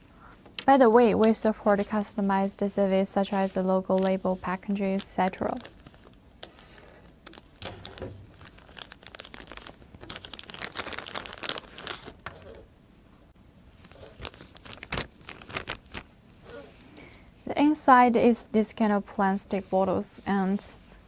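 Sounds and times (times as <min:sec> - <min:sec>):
plastic bag crinkling: 0:04.9 - 0:12.6, 0:13.8 - 0:16.1.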